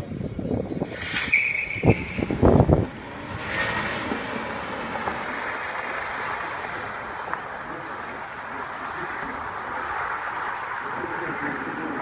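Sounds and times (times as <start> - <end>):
cars accelerating away: 0.8 - 12.0
low buffeting thuds: 1.7 - 8.5.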